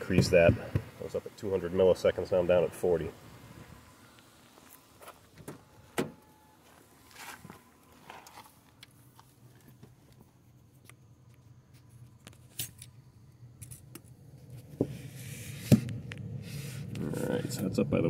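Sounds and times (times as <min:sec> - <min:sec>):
car engine idling: 0:00.0 - 0:10.4.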